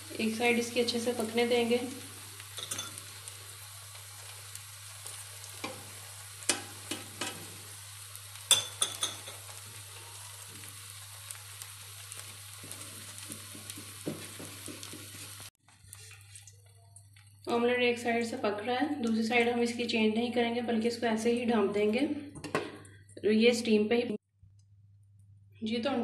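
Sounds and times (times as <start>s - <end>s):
egg sizzling in hot oil: 0.0s - 17.5s.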